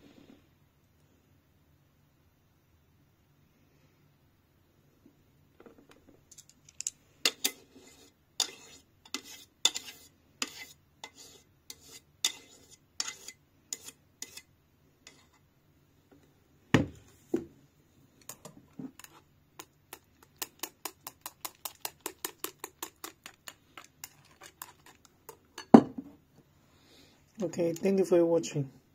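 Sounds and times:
metal jug clinking on ceramic plate: 25.6s - 26.0s.

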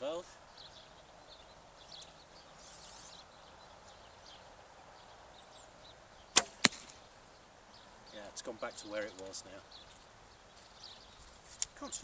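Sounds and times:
arrow striking target: 6.3s - 7.0s
bowstring snap: 6.4s - 7.0s.

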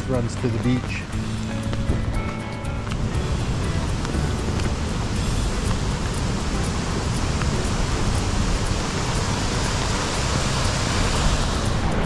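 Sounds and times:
heavy rain: 0.0s - 12.0s
water flowing along gutter: 2.8s - 12.0s.

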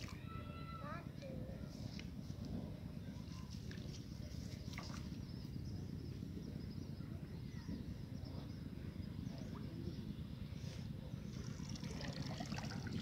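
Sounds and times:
faint bird chirps: 3.0s - 11.4s.

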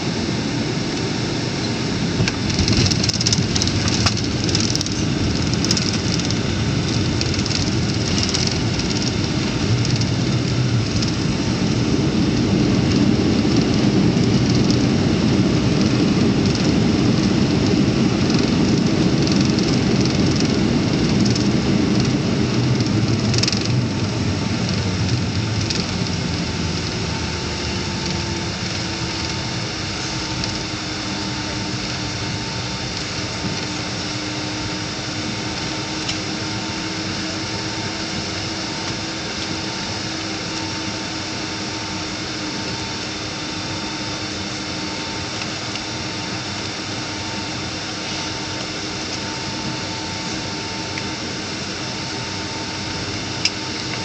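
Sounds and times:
airliner landing roar in cabin: 0.0s - 54.0s
jet engine whine: 0.0s - 54.0s.

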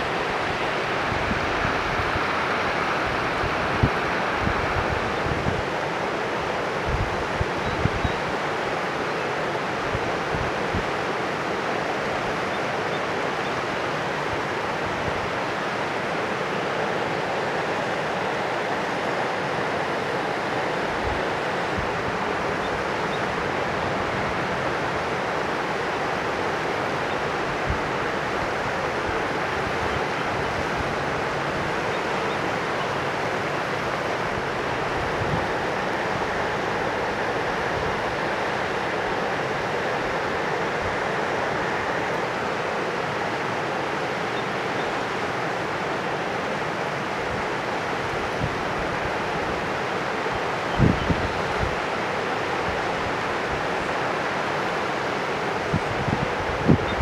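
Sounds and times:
wind bumps on microphone: 0.0s - 5.7s, 6.8s - 8.2s, 50.7s - 51.8s, 55.7s - 57.0s
river rushing: 0.0s - 57.0s.

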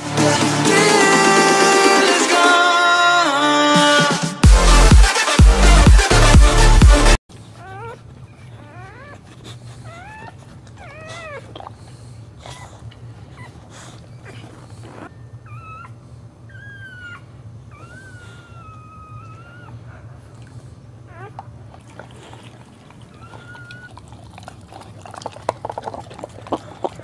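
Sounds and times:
dog whining: 7.4s - 27.0s.

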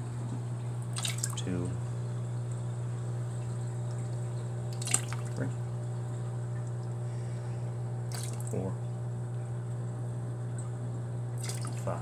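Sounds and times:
steady low hum: 0.0s - 12.0s
liquid splashing into bucket: 0.8s - 1.5s, 3.9s - 5.5s, 8.1s - 8.6s, 11.4s - 12.0s.

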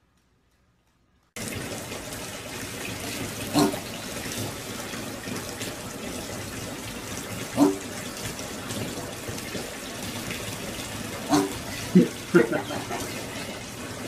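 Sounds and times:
piglet call: 3.5s - 3.8s, 11.3s - 13.0s.

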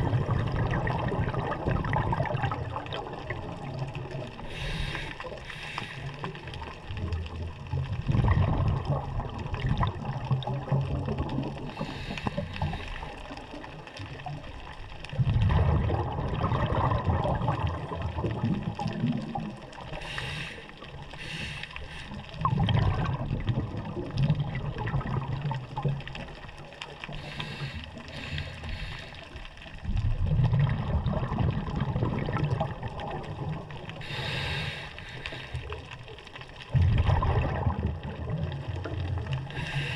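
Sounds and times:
exhaled bubbles rushing: 0.0s - 5.5s, 6.2s - 20.2s, 20.8s - 29.0s, 29.7s - 39.9s
regulator inhale hiss: 4.4s - 6.5s, 11.7s - 13.3s, 19.9s - 22.4s, 27.1s - 29.5s, 34.0s - 35.8s, 39.5s - 39.9s.

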